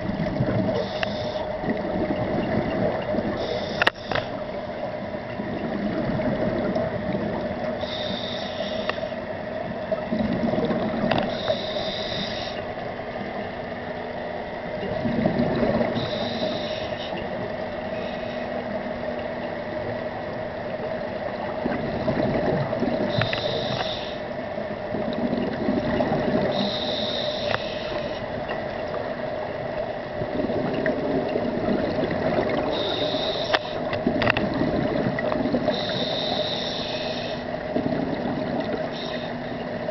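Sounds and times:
exhaled bubbles rumbling: 0.0s - 0.9s, 1.5s - 3.5s, 4.5s - 7.8s, 9.6s - 11.4s, 14.6s - 16.4s, 18.6s - 23.7s, 24.6s - 26.8s, 28.0s - 36.1s, 37.5s - 39.9s
steady hum: 0.0s - 39.9s
scuba regulator hissing inhale: 0.8s - 1.6s, 3.4s - 4.4s, 7.8s - 9.2s, 11.3s - 12.7s, 16.0s - 17.2s, 17.9s - 18.5s, 23.1s - 24.3s, 26.5s - 28.2s, 32.7s - 33.8s, 35.7s - 37.5s, 38.9s - 39.4s.

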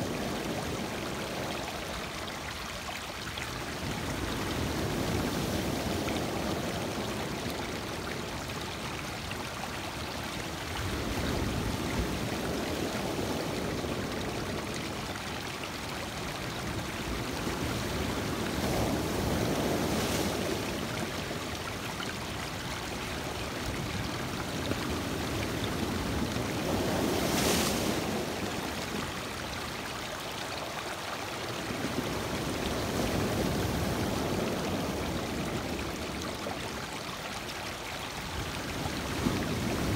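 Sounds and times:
waves breaking on rocky shore: 16.6s - 21.9s, 23.0s - 29.4s, 31.6s - 36.2s.

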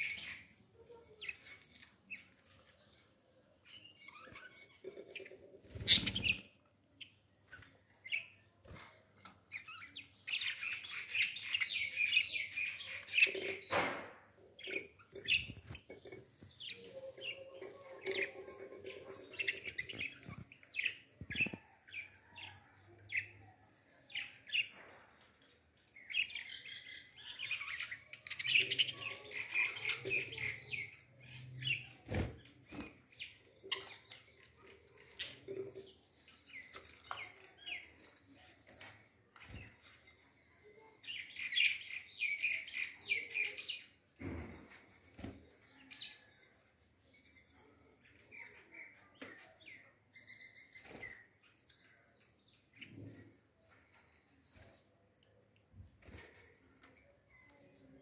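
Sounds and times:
budgerigars chirping and chattering: 3.6s - 8.4s, 9.5s - 22.6s, 26.0s - 32.0s, 40.7s - 44.8s.

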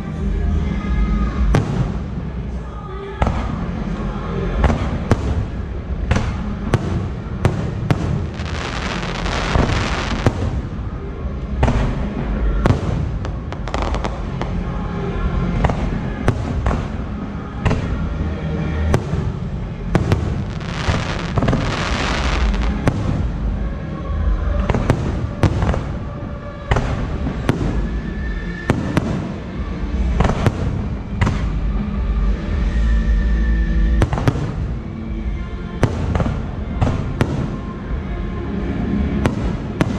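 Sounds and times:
low rumble: 3.2s - 39.9s
dense firework crackle: 4.6s - 11.0s, 11.6s - 14.7s, 18.9s - 23.6s.

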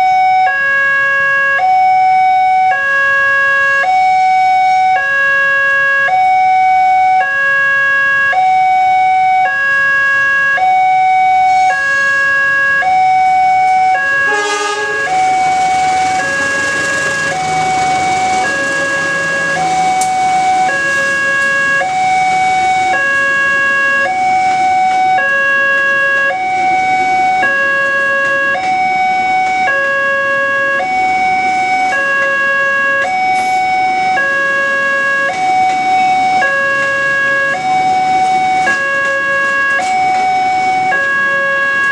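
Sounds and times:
level crossing alarm two-tone signal: 0.0s - 41.9s
locomotive horn blast: 13.8s - 21.7s
train passing rumble: 14.1s - 23.4s.

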